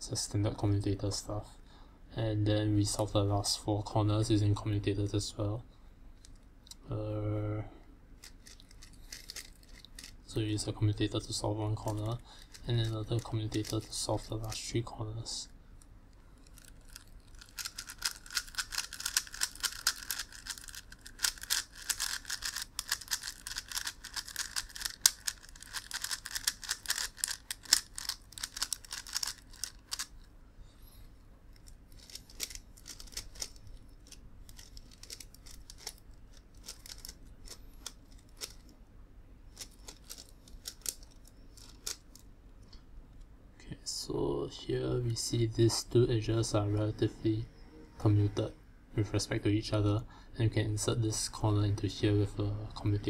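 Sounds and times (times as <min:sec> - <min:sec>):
plastic puzzle clicking: 0:16.4 - 0:30.1, 0:31.6 - 0:38.7, 0:39.5 - 0:42.2.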